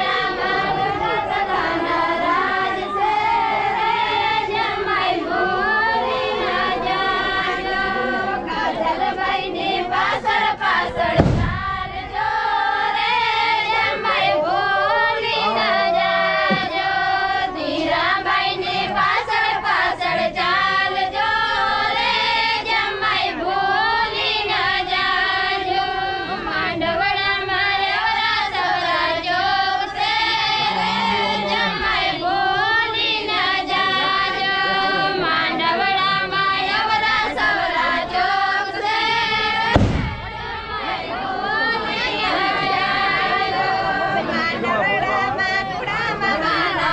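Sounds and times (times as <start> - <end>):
women and girls singing in unison: 0.0 - 46.9
thump: 11.0 - 12.2, 16.5 - 16.8, 39.7 - 40.6.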